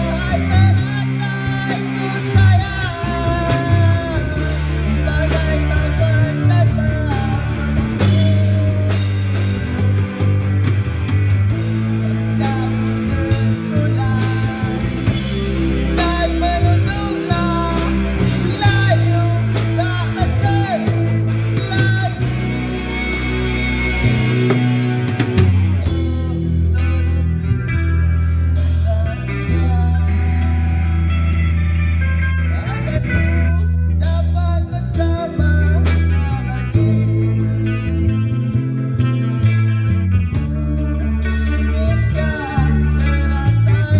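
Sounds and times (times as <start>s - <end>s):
person singing into a microphone: 0.0s - 10.5s, 11.6s - 27.5s, 28.5s - 31.6s, 32.4s - 39.5s, 40.2s - 43.9s
drum kit beat: 0.0s - 43.9s
electric guitars: 0.0s - 43.9s.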